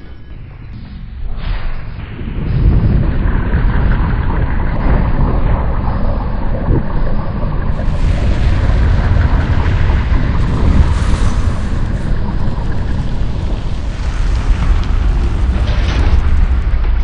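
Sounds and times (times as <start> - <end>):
slowed-down rocket launch blast: 7.7 - 17.0.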